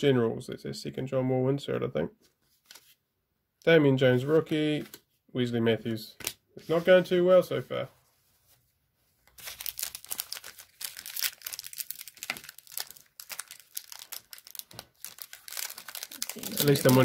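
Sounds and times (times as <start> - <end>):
wrapper crinkling and tearing: 9.3 - 17.0.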